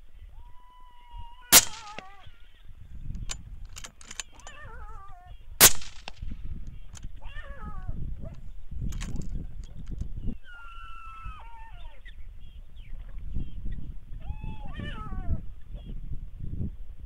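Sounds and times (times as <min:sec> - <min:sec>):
loud sharp cracks: 0:01.5 - 0:02.2, 0:05.6 - 0:06.2.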